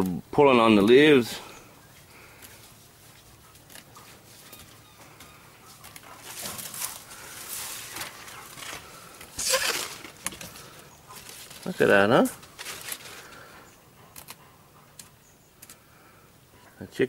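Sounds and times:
hen pecking and tearing leaves: 5.7s - 11.8s, 12.4s - 13.5s.

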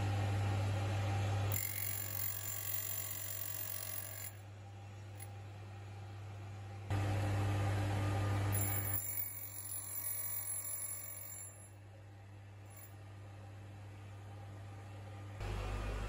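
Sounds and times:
lathe motor deep hum: 6.9s - 8.6s, 13.6s - 16.0s.

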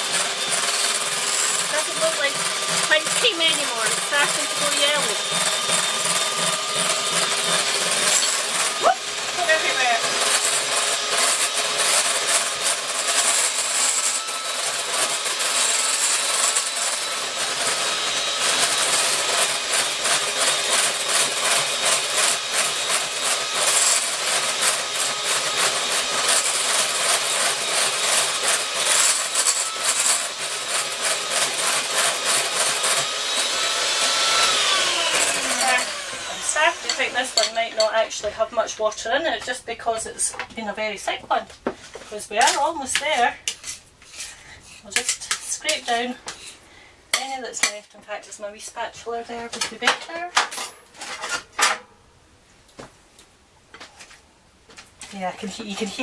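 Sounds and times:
electric hand mixer clattering: 0.0s - 38.1s.

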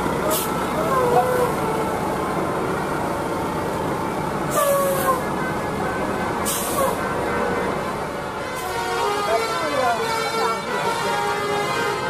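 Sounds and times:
diesel coach engine humming: 0.0s - 12.0s
air hissing: 6.4s - 7.0s.

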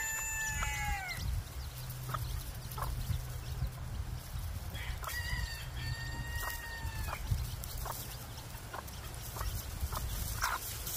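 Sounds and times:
chicken long drawn-out call: 0.0s - 1.2s
chicken clucking: 0.0s - 10.9s.

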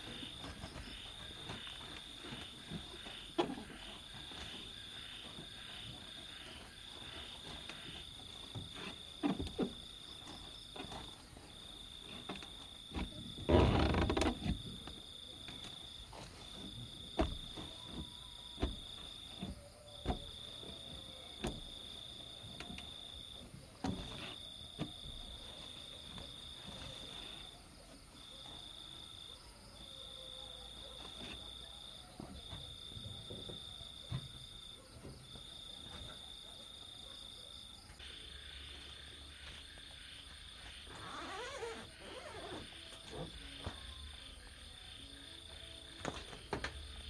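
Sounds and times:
rustling: 0.0s - 29.1s
insect high-pitched trill: 37.9s - 47.0s.

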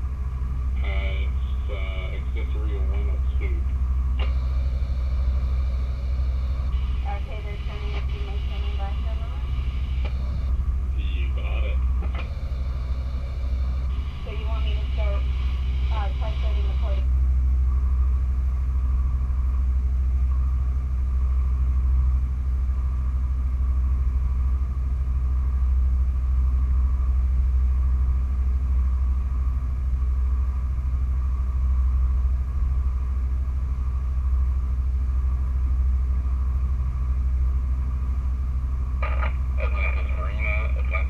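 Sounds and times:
boat engines rumbling: 0.0s - 18.1s, 34.4s - 41.0s.

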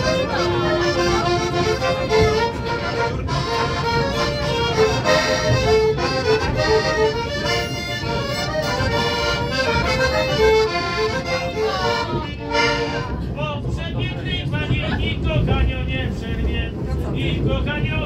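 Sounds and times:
accordion playing a tune: 0.0s - 13.3s.

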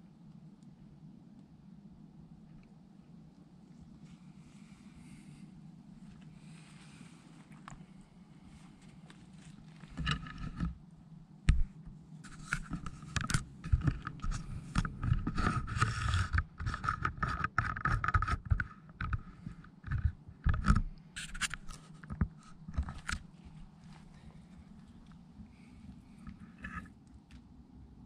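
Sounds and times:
sharp knocks and rubbing: 9.8s - 10.8s, 11.5s - 23.3s.

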